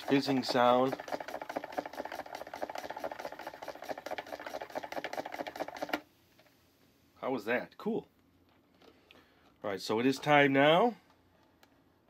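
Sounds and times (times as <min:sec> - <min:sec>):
soda fizzing: 0:00.0 - 0:05.9.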